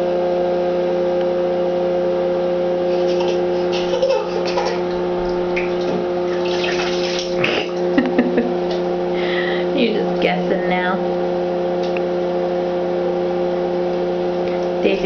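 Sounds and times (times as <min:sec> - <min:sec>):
steady two-pitch hum: 0:00.0 - 0:15.0
bath water splashing: 0:02.9 - 0:08.1.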